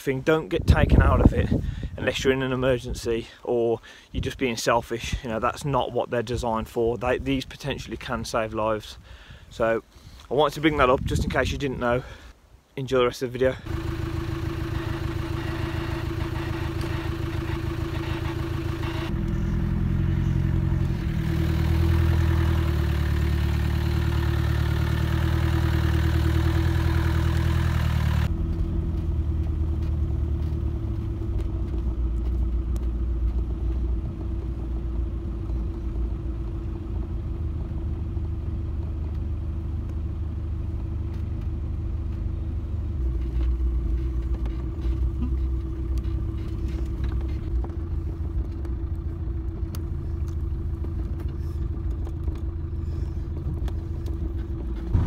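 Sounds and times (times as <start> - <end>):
engine hum inside vehicle: 13.6 - 55.0
rumble of drivetrain and tyres: 13.6 - 55.0.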